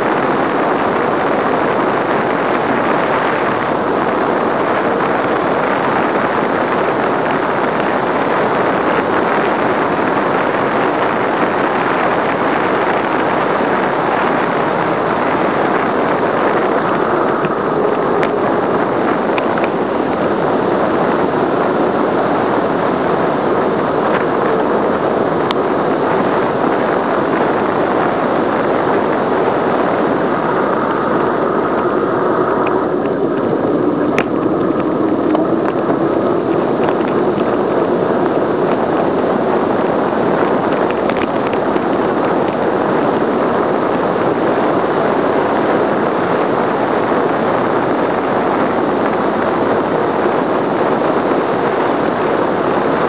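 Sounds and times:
wind rushing over microphone: 0.0 - 53.0.

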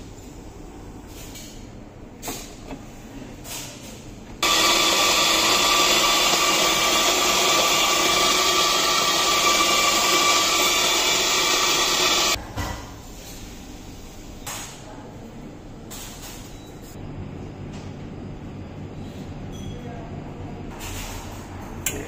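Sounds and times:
coffee grinder whirring: 4.4 - 12.4.

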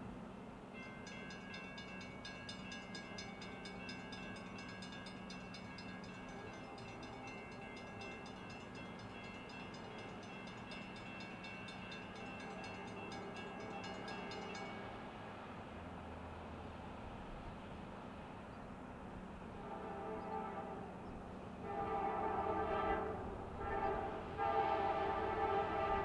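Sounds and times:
crossing warning bell ringing: 0.8 - 15.2.

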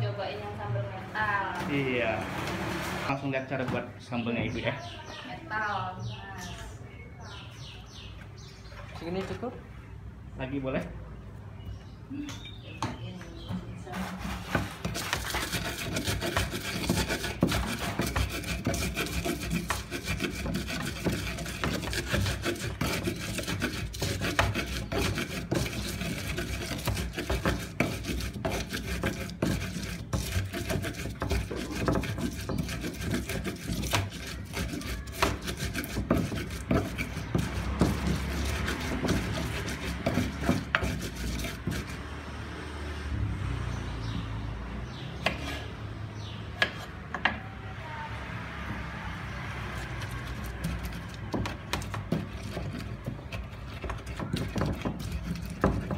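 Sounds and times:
pestle knocking: 12.8 - 42.0, 49.8 - 55.9
pestle grinding in clay mortar: 13.4 - 42.5, 45.0 - 47.4, 48.7 - 55.9.

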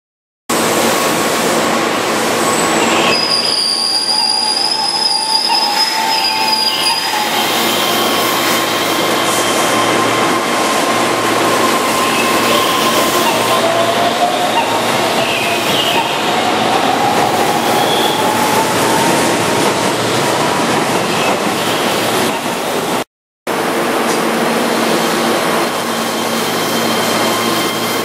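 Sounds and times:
electric train rolling: 0.6 - 23.0
high-pitched squeal: 2.4 - 19.7, 24.8 - 28.0.

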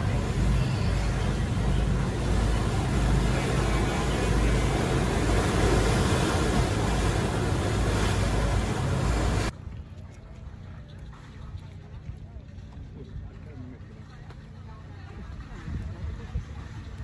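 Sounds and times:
water rushing past hull: 0.0 - 13.2
boat engine running: 0.0 - 17.0.

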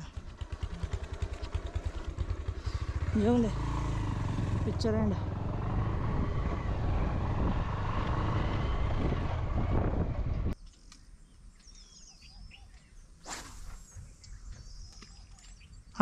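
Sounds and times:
motorcycle engine running: 0.0 - 10.6
wind noise: 5.7 - 10.6
birds chirping: 10.3 - 16.0.

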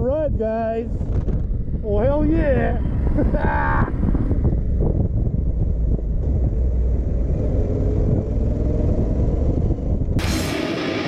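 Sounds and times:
low wind rumble: 0.0 - 11.0
motorcycle engine running: 4.0 - 10.2.

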